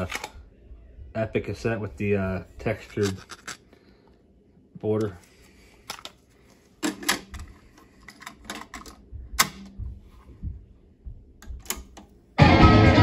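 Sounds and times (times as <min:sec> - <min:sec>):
rock music: 0:12.4 - 0:13.0.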